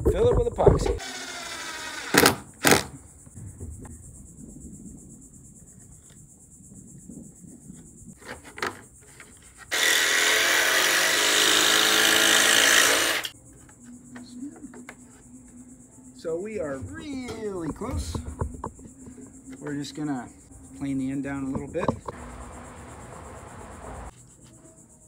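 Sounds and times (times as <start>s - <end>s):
jigsaw cutting wood: 1.0s - 2.8s, 9.7s - 13.3s.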